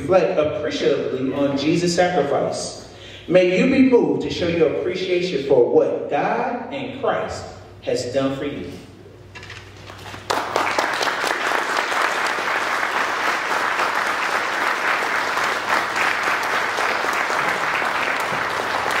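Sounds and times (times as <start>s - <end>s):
audience applauding: 10.0s - 19.0s.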